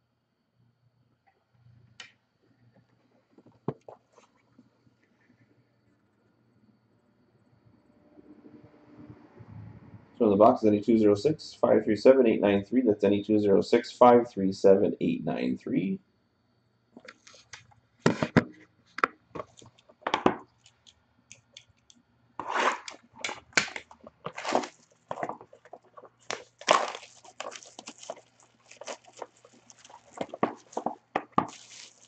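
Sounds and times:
plastic wrap crinkling and tearing: 22.4 - 32.0.

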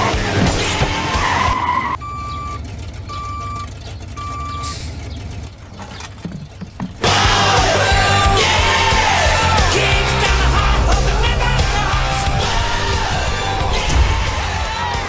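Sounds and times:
vehicle rushing and skidding: 0.0 - 2.0, 4.8 - 15.0
reversing alarm beeps: 2.0 - 4.9.

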